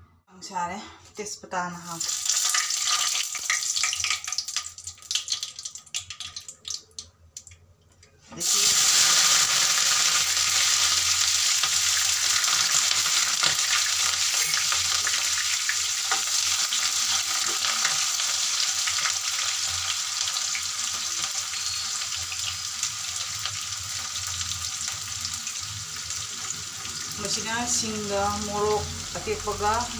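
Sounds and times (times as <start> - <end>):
chicken sizzling in hot oil: 1.8 - 6.8, 8.4 - 29.9.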